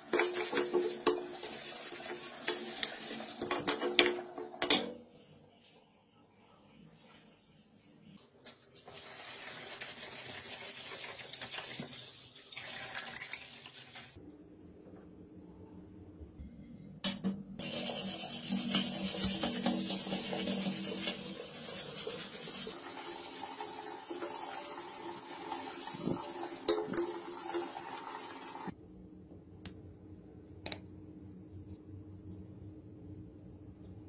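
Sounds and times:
hands scrubbing under running water: 17.6 - 28.7.

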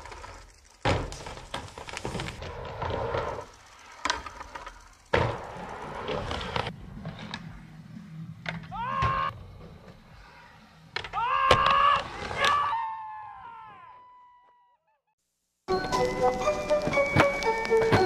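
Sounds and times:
skateboard wheels rolling: 0.0 - 12.9, 15.7 - 18.0
skateboard clacks and impacts: 0.8 - 3.4, 16.8 - 18.0.

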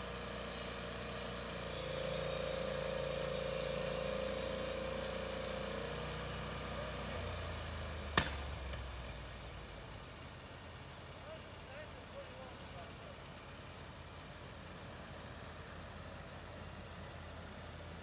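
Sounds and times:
sawmill engine running: 0.0 - 18.0
sharp knock: 8.2 - 8.5.

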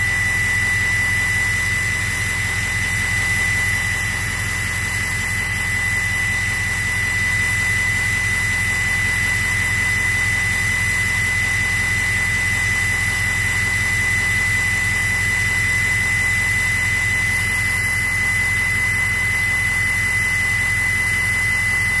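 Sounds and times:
diesel engine running: 0.0 - 13.8
high steady whistle: 0.0 - 22.0.

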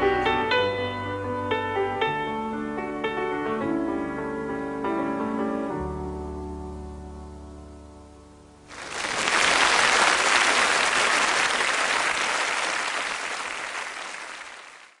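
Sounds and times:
audience applause: 8.7 - 15.0.

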